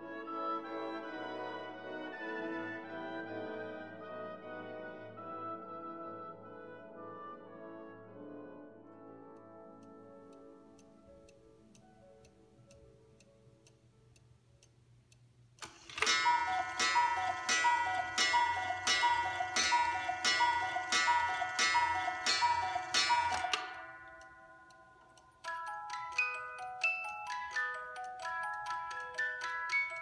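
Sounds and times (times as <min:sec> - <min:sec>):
clock ticking: 0:09.8 - 0:30.0.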